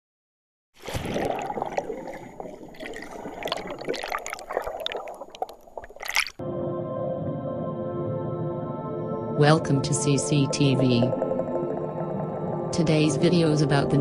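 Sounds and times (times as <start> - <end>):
small splashes: 0.8 - 6.4
water bubbling and gurgling: 0.8 - 6.4, 10.3 - 14.0.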